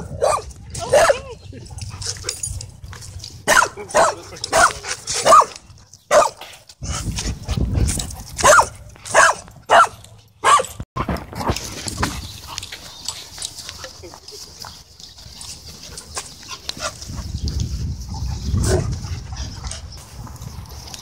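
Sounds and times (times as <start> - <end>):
dogs barking: 0.0 - 2.2, 3.4 - 6.5, 8.4 - 10.8.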